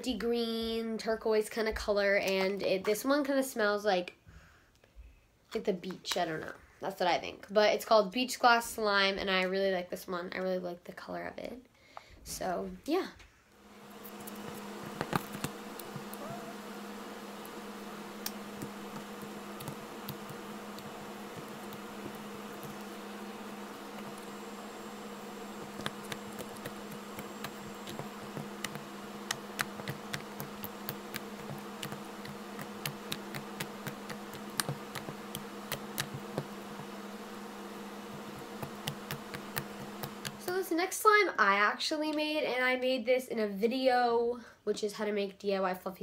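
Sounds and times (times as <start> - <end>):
low hum: 13.6 - 40.4.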